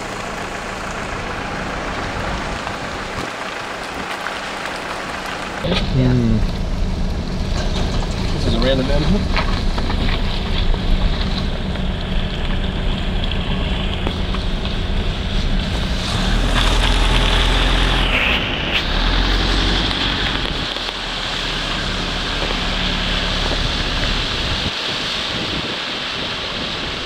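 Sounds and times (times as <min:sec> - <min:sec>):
car engine and tyres rumbling: 0:00.0 - 0:27.0
wind noise on microphone: 0:21.8 - 0:27.0.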